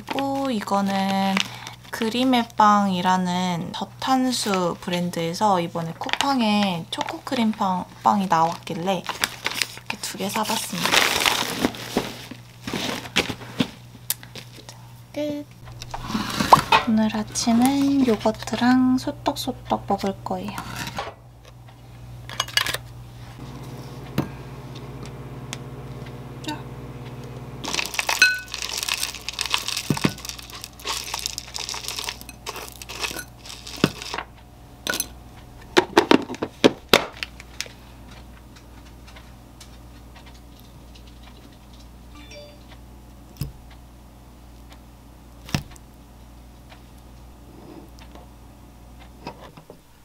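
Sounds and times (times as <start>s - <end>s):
plastic packaging crinkling and tearing: 8.1s - 13.7s, 27.6s - 34.3s
low steady hum: 13.2s - 50.0s
granola clinking into glass bowl: 27.7s - 34.2s.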